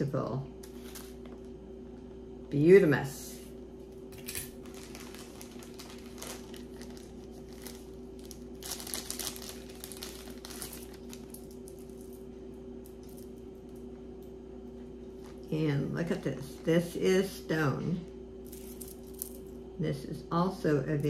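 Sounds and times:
steady low hum: 0.0s - 21.0s
packaging bag crinkling: 4.2s - 12.3s.

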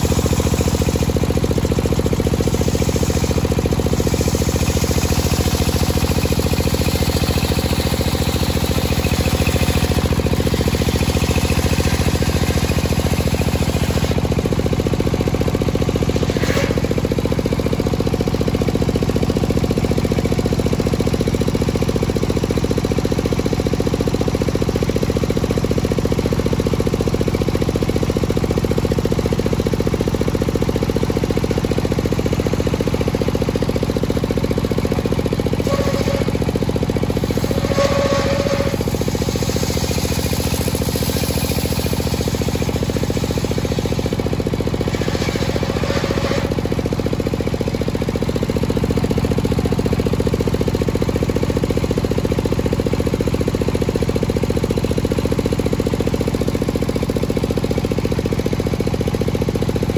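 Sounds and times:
fast even engine beat: 0.0s - 17.9s, 34.4s - 47.6s
saw blade ripping through log: 16.1s - 17.2s.

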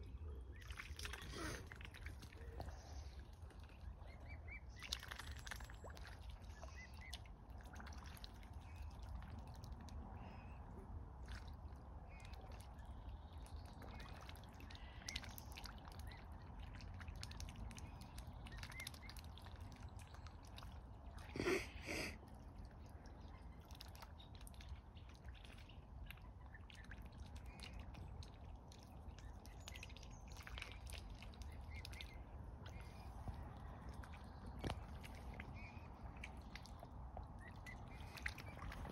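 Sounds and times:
swans splashing on water: 0.0s - 38.9s.

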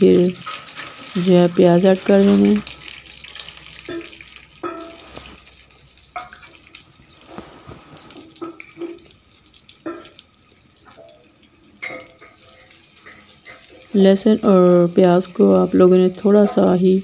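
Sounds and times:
oil sizzling in a frying pan: 0.0s - 17.0s.

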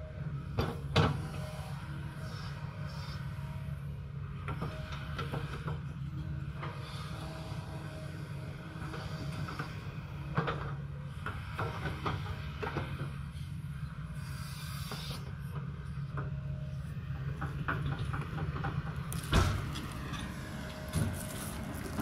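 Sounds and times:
excavator diesel engine: 0.0s - 22.0s
loud thump: 19.2s - 19.7s.

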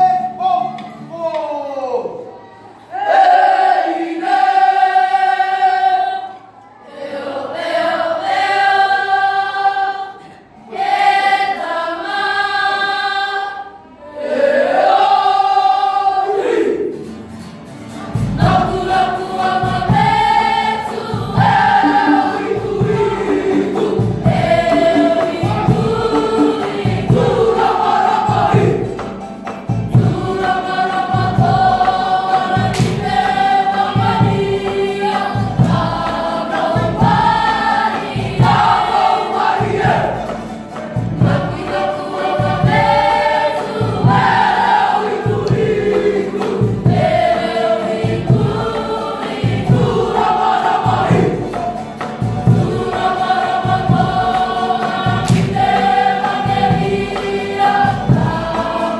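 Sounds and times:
strummed ukulele and guitar: 0.0s - 1.6s, 16.8s - 58.9s
children singing in chorus: 2.7s - 16.9s, 18.4s - 29.2s, 29.9s - 40.5s, 41.1s - 58.9s
steady low beat: 21.8s - 27.6s.

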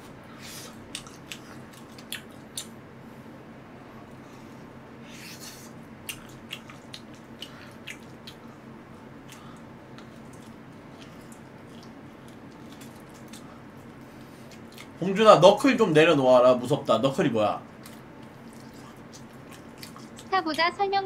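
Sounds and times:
man chewing meat: 0.0s - 3.2s, 3.8s - 15.0s, 17.6s - 20.3s
steady low hum: 0.0s - 21.0s.

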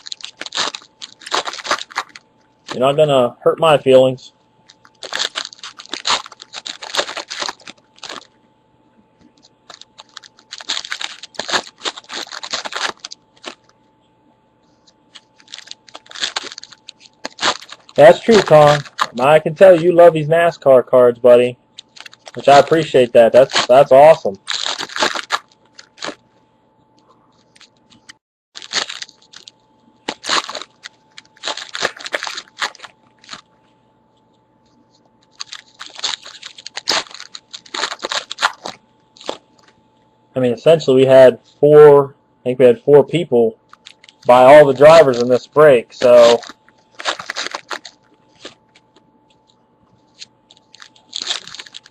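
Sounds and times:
plastic packaging crinkling: 0.0s - 3.0s, 4.6s - 8.4s, 9.4s - 13.8s, 14.8s - 20.1s, 21.8s - 26.2s, 27.4s - 33.6s, 34.6s - 39.8s, 43.6s - 51.9s.

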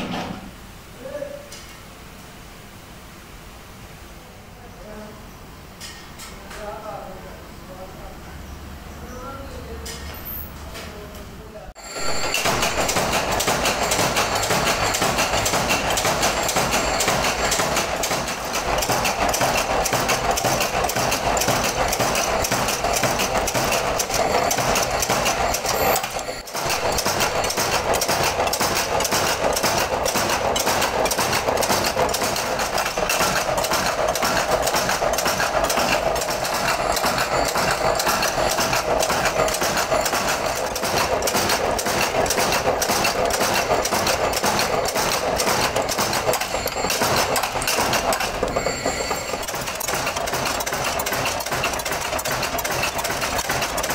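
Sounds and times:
power press ram knocking: 12.0s - 53.9s.

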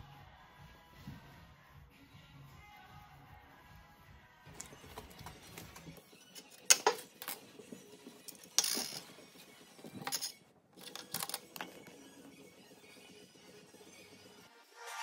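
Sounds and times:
plastic items clicking: 4.6s - 7.5s, 9.9s - 12.0s.

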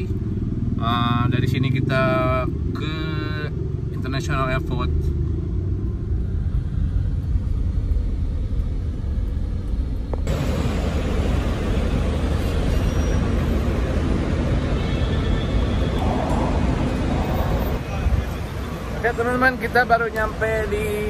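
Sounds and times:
car interior rumble: 15.9s - 19.5s.

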